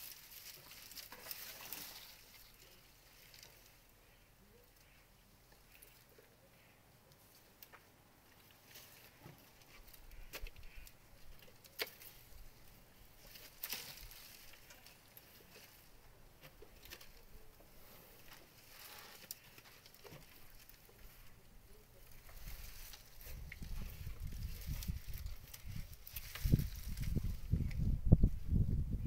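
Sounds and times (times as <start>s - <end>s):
dry branches snapping: 0.0s - 3.7s, 8.4s - 12.5s, 13.2s - 15.8s, 16.4s - 17.4s, 18.2s - 21.1s, 22.0s - 27.9s.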